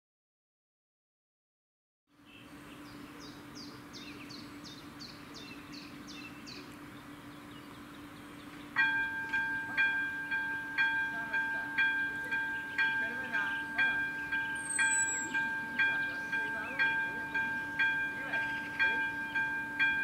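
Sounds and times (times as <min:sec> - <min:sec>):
low steady hum: 0:02.1 - 0:20.0
warning bell ringing: 0:08.8 - 0:20.0
faint high chirps: 0:13.6 - 0:16.4.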